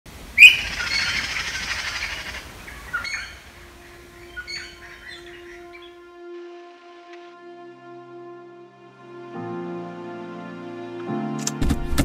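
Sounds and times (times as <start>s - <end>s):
birds chirping: 0.1s - 6.0s
soft music with long notes: 3.1s - 12.0s.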